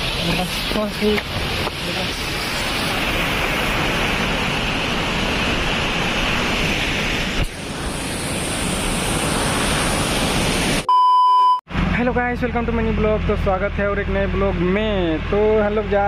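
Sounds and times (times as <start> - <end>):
waterfall and river roaring: 0.0 - 10.8.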